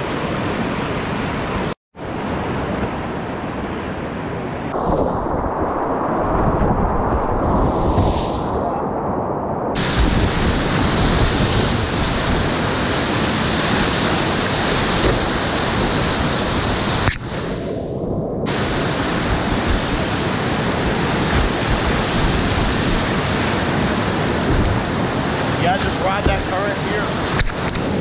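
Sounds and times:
wind buffeting microphone: 0:01.6 - 0:28.0
whitewater rapids rushing: 0:18.5 - 0:27.7.

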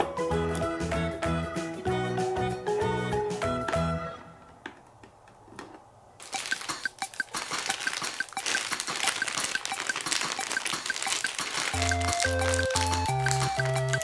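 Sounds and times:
plastic bag crinkling: 0:06.2 - 0:14.0
plastic toy clicks: 0:06.2 - 0:14.0.

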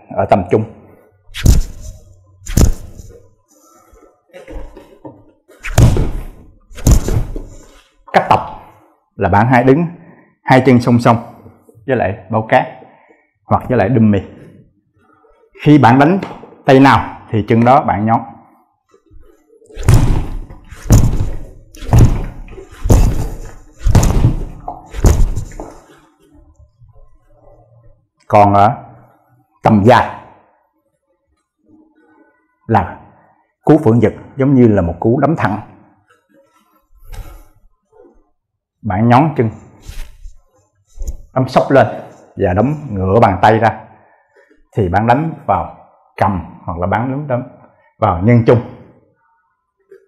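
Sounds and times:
punches thudding on rubber dummy: 0:05.6 - 0:07.6, 0:19.8 - 0:25.7.

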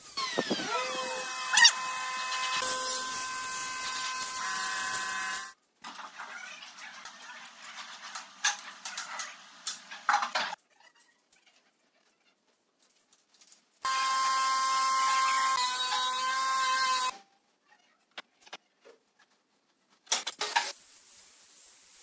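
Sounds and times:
power tool motor whining: 0:00.2 - 0:05.5.

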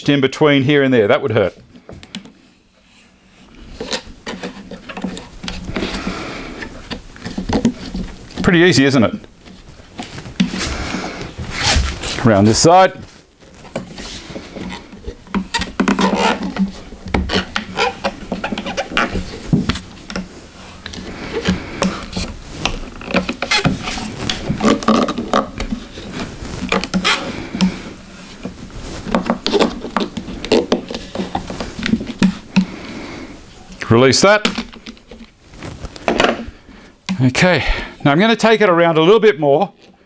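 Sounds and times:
rubber rubbing on metal wheel: 0:02.2 - 0:33.8.

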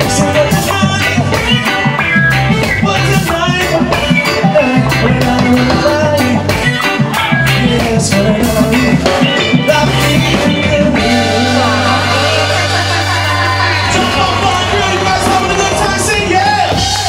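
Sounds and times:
live reggae band playing: 0:00.0 - 0:17.0.

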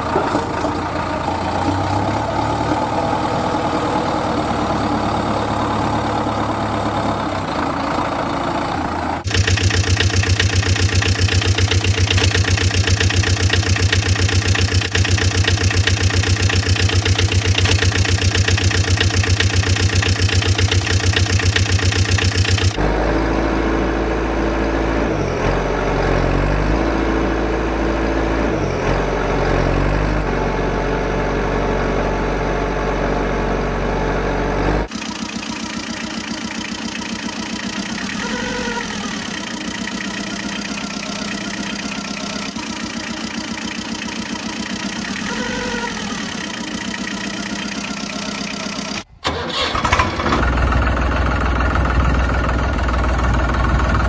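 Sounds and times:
heavier low-pitched engine: 0:00.0 - 0:54.0
engine idling with pulsing beat: 0:09.2 - 0:22.8, 0:34.9 - 0:38.2, 0:39.0 - 0:45.3.

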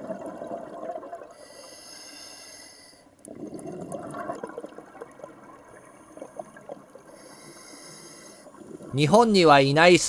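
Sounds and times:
exhaled bubbles gurgling: 0:00.0 - 0:01.4, 0:03.2 - 0:07.3
regulator inhale hiss: 0:01.4 - 0:03.2, 0:07.1 - 0:08.6.

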